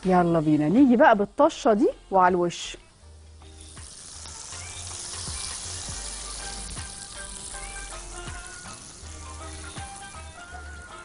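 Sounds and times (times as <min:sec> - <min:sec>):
hot oil sizzling on bread: 0:00.0 - 0:11.0.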